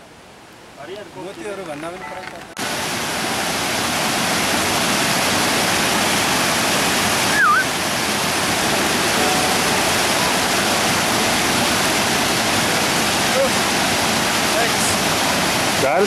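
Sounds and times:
stream rushing over rocks: 0:00.1 - 0:16.0
whistle-like note: 0:07.3 - 0:07.7.

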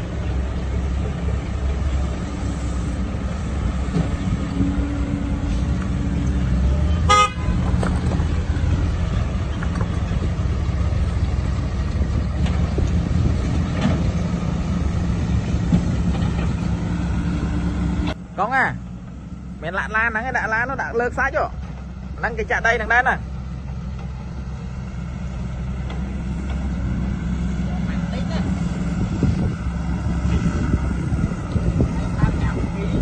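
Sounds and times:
diesel engines running: 0:00.0 - 0:33.0
vehicle horn toot: 0:06.9 - 0:07.6.

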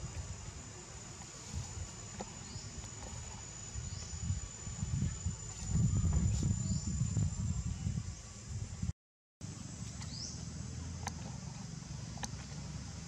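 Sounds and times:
high-pitched insect drone: 0:00.0 - 0:08.5.

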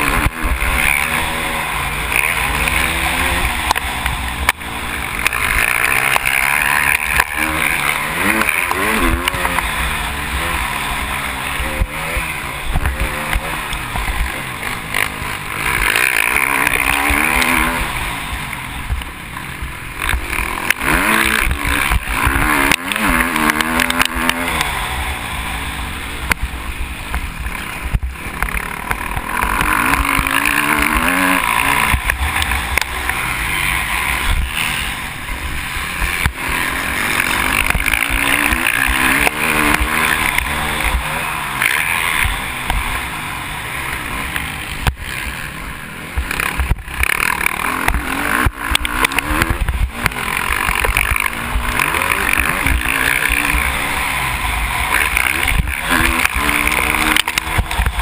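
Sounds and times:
motocross engine revving: 0:00.0 - 0:58.0.

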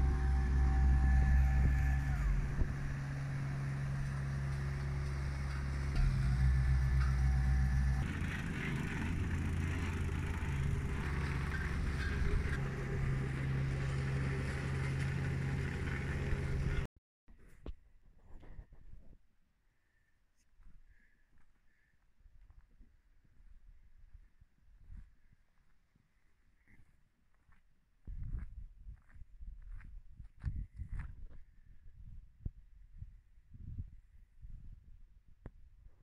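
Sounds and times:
road roller diesel engine running: 0:00.0 - 0:16.9.

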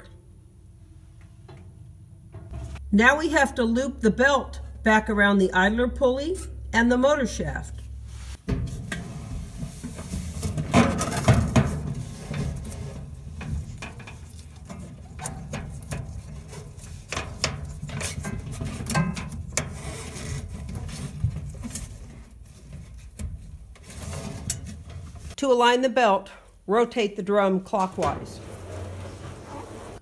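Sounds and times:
belt rubbing and scraping: 0:11.7 - 0:25.4, 0:28.4 - 0:30.0.

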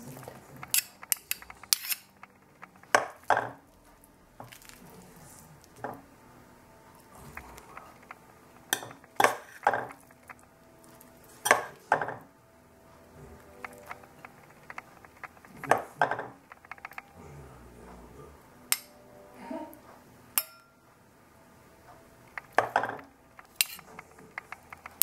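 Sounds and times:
metal spoon clinking on bowl: 0:07.3 - 0:10.1, 0:20.4 - 0:20.7, 0:22.4 - 0:25.0.

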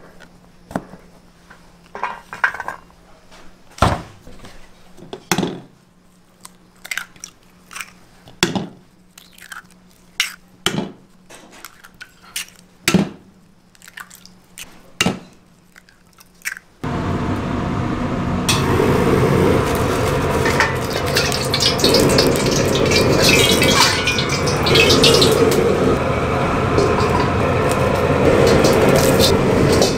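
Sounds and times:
eggs cracking on bowl rim: 0:06.4 - 0:08.0, 0:09.2 - 0:10.4, 0:13.7 - 0:14.8, 0:15.6 - 0:16.8
gas burner rushing: 0:16.8 - 0:29.9.

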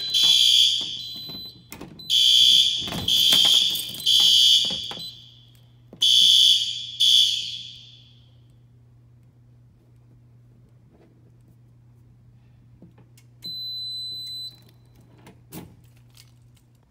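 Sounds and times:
fire alarm bells ringing: 0:00.0 - 0:08.3.

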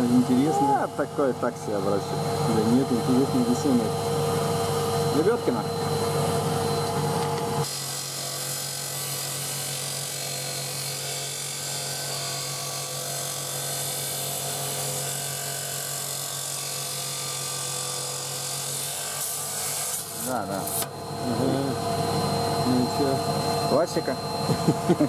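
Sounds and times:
stone-cutting saw grinding: 0:07.6 - 0:21.7.

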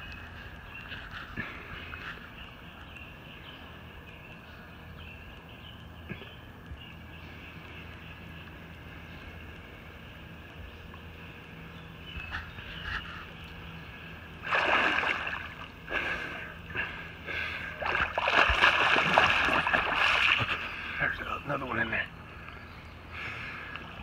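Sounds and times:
faint low hum: 0:00.0 - 0:24.0
water splashing and churning: 0:14.4 - 0:20.9.

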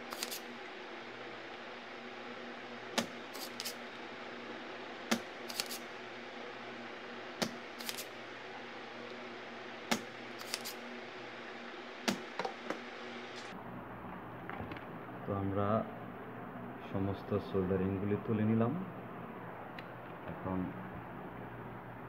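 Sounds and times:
desoldering pump snapping: 0:00.0 - 0:00.5, 0:05.1 - 0:05.8, 0:07.4 - 0:08.1, 0:09.9 - 0:10.8
steady low hum: 0:00.0 - 0:22.0.

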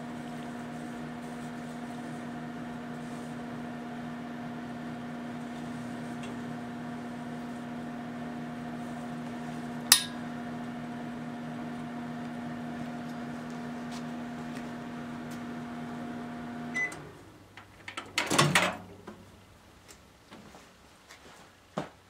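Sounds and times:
microwave oven humming: 0:00.0 - 0:17.5
microwave beep: 0:16.7 - 0:17.1.

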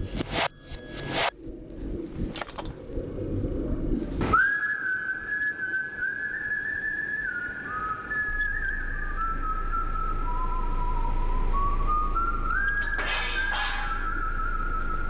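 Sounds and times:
high whistling tone: 0:04.3 - 0:15.0
sharp hit: 0:12.8 - 0:14.6.

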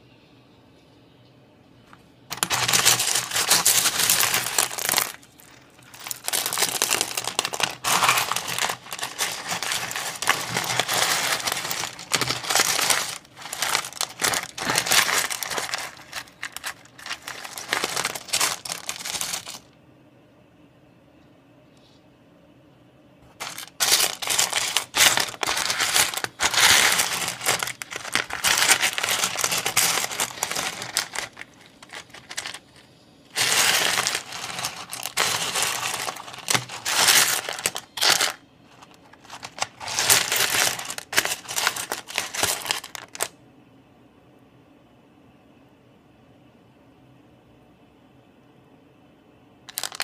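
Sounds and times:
stones clattering on a tray: 0:02.3 - 0:19.6, 0:23.4 - 0:32.8, 0:33.4 - 0:43.3, 0:49.7 - 0:50.0.

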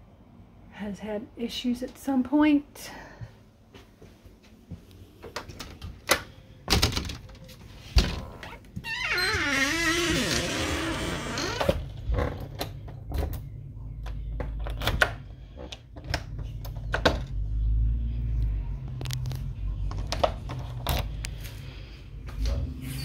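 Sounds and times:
footsteps: 0:03.2 - 0:05.4
door creaking open: 0:05.6 - 0:13.5
low rumble: 0:16.5 - 0:23.0.

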